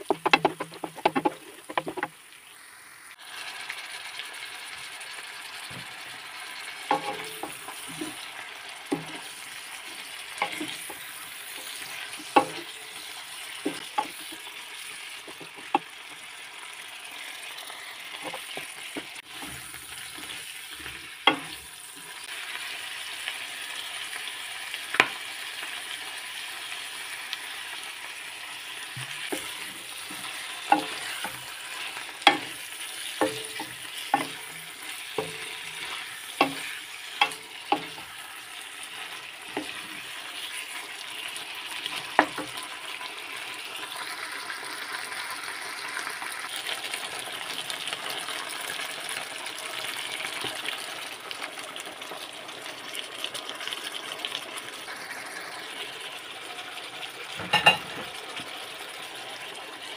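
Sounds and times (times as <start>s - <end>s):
spatula knocking and scraping pan: 0.0s - 2.2s, 6.9s - 14.5s, 15.1s - 15.9s, 18.2s - 21.6s, 29.0s - 38.2s, 38.8s - 40.5s, 42.0s - 42.6s
livers sizzling in a wok: 0.0s - 59.9s.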